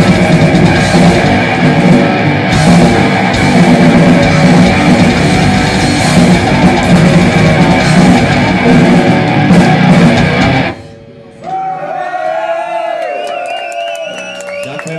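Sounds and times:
live heavy metal band: 0:00.0 - 0:11.0
crowd cheering: 0:11.3 - 0:14.9
crowd whistling: 0:11.4 - 0:14.9.

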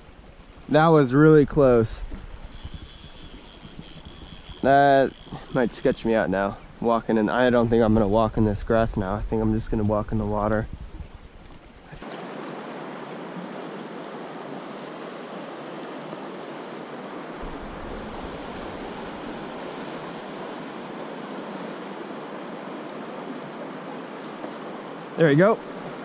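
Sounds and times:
fast-flowing river rushing: 0:12.0 - 0:26.0.

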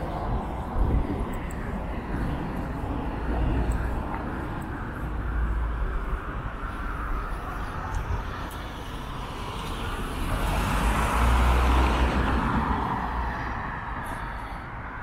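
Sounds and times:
low traffic rumble: 0:00.0 - 0:15.0
car passing by: 0:08.8 - 0:14.0.

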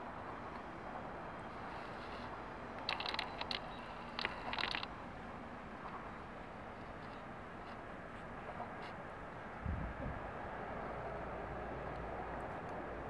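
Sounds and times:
high scratchy clicks: 0:01.9 - 0:05.0.

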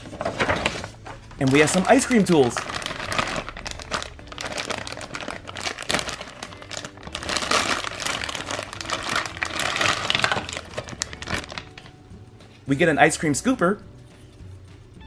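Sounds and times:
plastic bag crinkling: 0:00.0 - 0:11.9.

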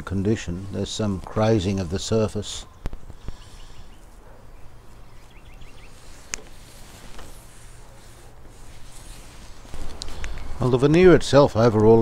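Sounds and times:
cloth rubbing on wood: 0:05.9 - 0:10.2.

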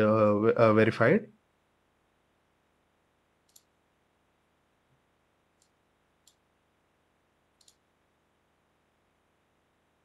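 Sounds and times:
faint sharp clicks: 0:03.4 - 0:03.8, 0:05.6 - 0:06.4, 0:07.6 - 0:07.9.

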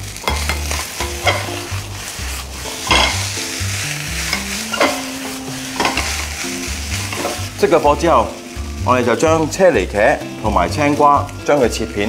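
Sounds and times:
fried rice sizzling in a pan: 0:00.0 - 0:12.0
spatula scraping a pan: 0:00.2 - 0:07.6.

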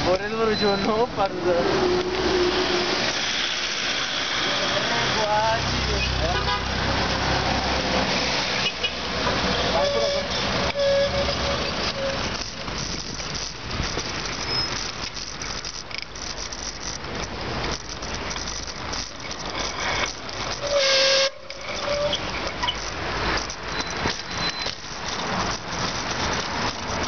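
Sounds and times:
bicycle road noise: 0:00.0 - 0:27.0
short shrill tone: 0:20.6 - 0:22.8.

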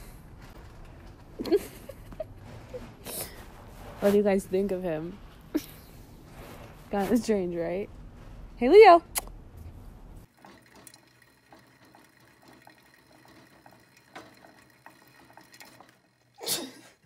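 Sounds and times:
hamster wheel clicking and rattling: 0:10.3 - 0:16.4.

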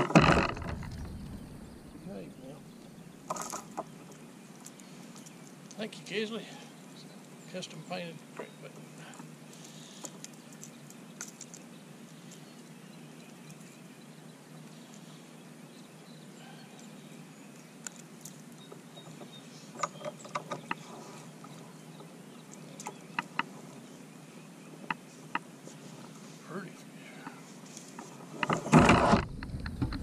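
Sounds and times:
steady low hum: 0:00.0 - 0:03.3.

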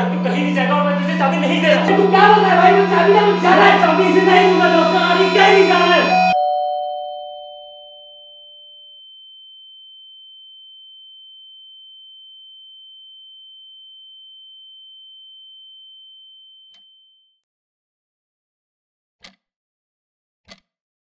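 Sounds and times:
high-pitched pure tone: 0:00.0 - 0:08.2
doorbell chime: 0:00.0 - 0:17.1.

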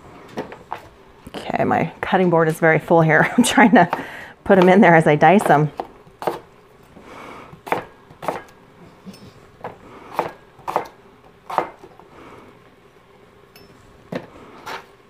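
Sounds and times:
knife chopping on cutting board: 0:05.4 - 0:06.5, 0:07.6 - 0:08.5, 0:09.6 - 0:11.9.

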